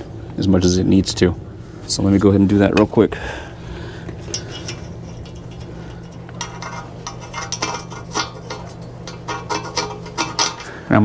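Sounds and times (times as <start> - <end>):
steady low hum: 0.0 - 11.0
metal nuts clinking: 4.2 - 10.9.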